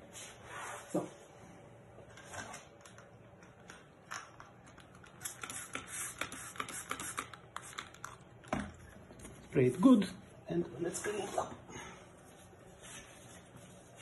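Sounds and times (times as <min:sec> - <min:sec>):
spray bottle squirts: 0:05.2 - 0:08.0.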